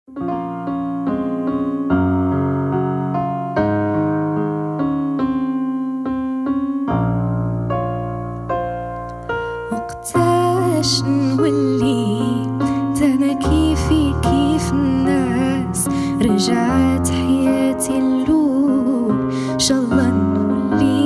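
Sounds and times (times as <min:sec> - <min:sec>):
grand piano playing chords: 0:00.1 - 0:21.0
woman singing: 0:09.7 - 0:21.0.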